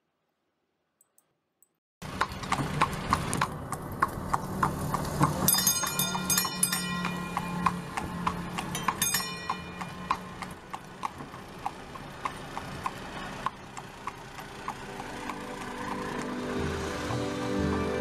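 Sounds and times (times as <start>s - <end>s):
short evenly spaced clops: 2.0s - 16.5s
bell-like ringing: 5.5s - 10.6s.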